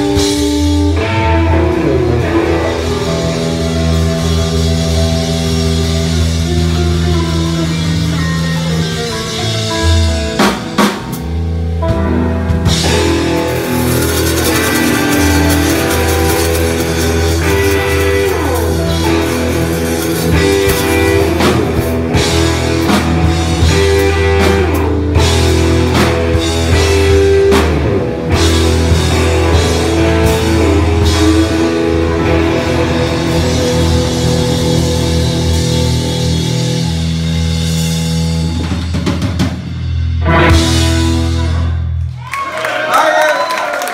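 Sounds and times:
electric guitar lead notes: 0.0s - 42.2s
drum kit: 0.0s - 42.6s
bass guitar: 0.0s - 43.0s.

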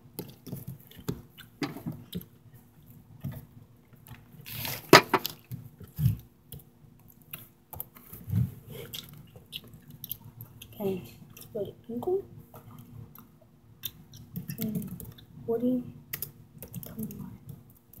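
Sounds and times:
faint steady hum: 0.0s - 18.0s
device handling knocks and clicks: 5.0s - 5.2s.

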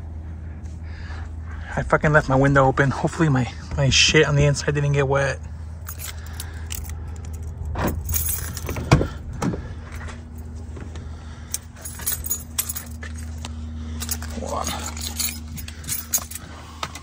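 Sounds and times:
low hum: 0.0s - 17.0s
keys jangling: 5.8s - 9.2s, 11.5s - 13.4s, 14.0s - 17.0s.

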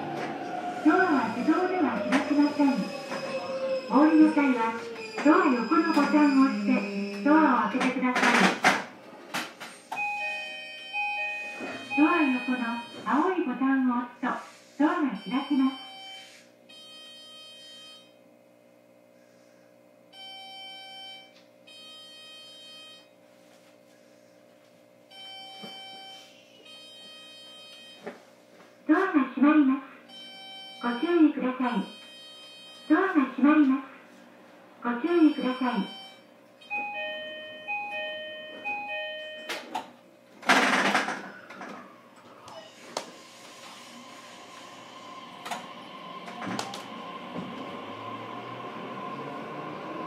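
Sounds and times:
train equipment hum: 0.0s - 5.1s, 41.2s - 50.0s
two-note door chime: 10.0s - 13.0s, 36.7s - 39.7s.

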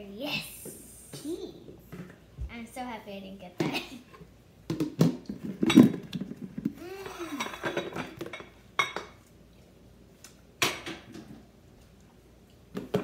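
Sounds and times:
dishes clattering on tabletop: 7.4s - 9.2s, 10.6s - 11.4s.

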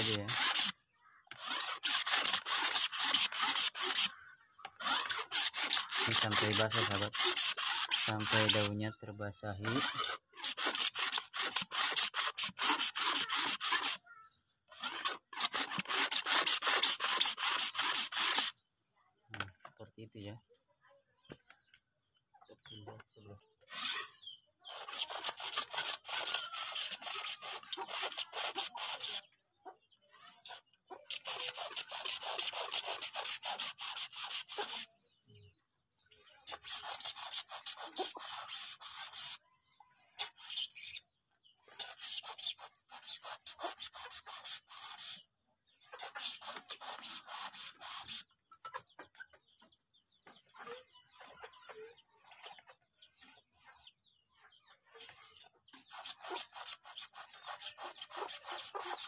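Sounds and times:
garden sprayer hissing: 0.0s - 9.0s, 9.6s - 18.6s, 23.9s - 29.3s, 30.3s - 35.0s, 36.4s - 39.4s, 41.7s - 45.3s, 45.9s - 48.3s, 55.3s - 59.0s.

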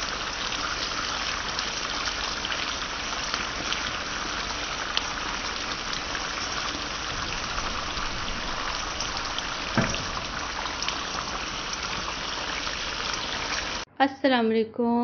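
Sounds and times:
okra sizzling in oil: 0.0s - 13.9s
knock: 7.1s - 10.4s.

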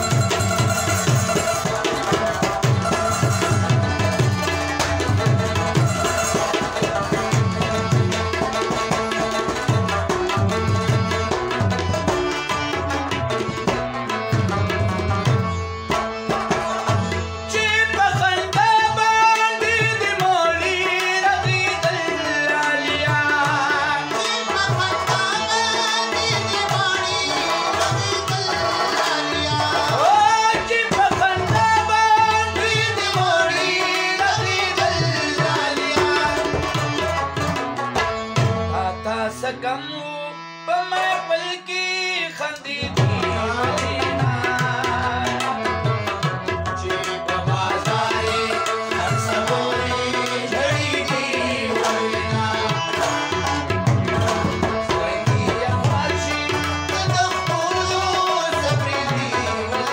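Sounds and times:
hand drum beat: 0.0s - 17.2s, 42.8s - 59.9s
harmonium: 0.0s - 59.9s
man singing: 0.0s - 59.9s.

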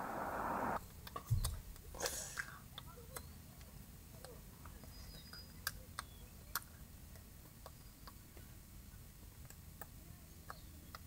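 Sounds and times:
low background rumble: 0.0s - 0.8s.

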